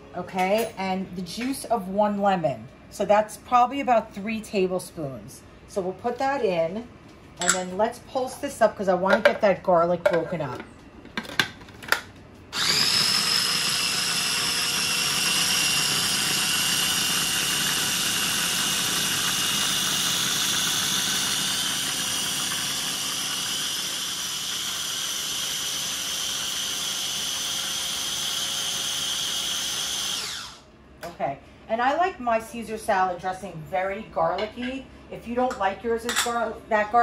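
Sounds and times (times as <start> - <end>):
food processor motor whine: 12.5 - 30.7.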